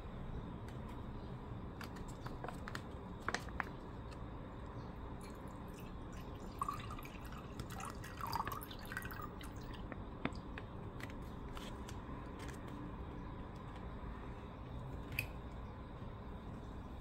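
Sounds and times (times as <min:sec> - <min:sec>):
liquid pouring into a mug: 0:05.2 - 0:10.4.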